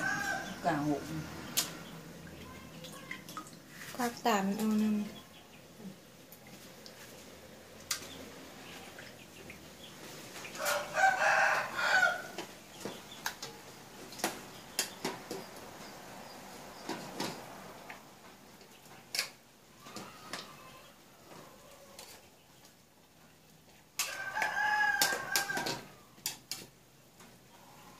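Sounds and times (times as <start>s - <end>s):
rooster crowing: 0.0s - 1.0s, 10.6s - 12.4s, 24.0s - 26.1s.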